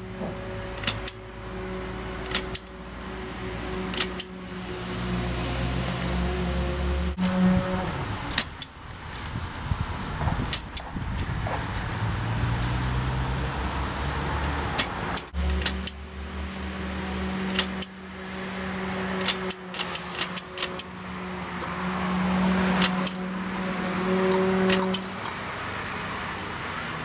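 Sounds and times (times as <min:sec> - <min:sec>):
typewriter metallic clicks: 0:00.8 - 0:01.2, 0:02.2 - 0:02.7, 0:03.9 - 0:04.3, 0:08.3 - 0:08.8, 0:14.8 - 0:16.0, 0:17.5 - 0:18.0, 0:19.2 - 0:20.9, 0:22.8 - 0:23.2, 0:24.7 - 0:25.4.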